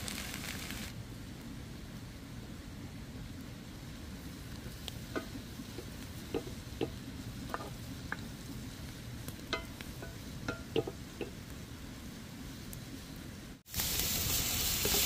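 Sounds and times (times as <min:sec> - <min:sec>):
fish sizzling in a pan: 0:00.0 - 0:00.9, 0:13.7 - 0:15.0
spatula tapping and scraping pan: 0:05.1 - 0:08.2, 0:09.4 - 0:11.4.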